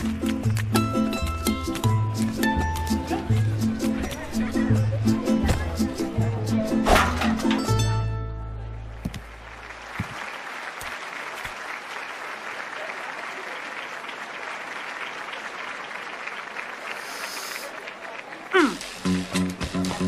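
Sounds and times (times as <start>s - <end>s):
audience applauding: 9.2s - 19.1s.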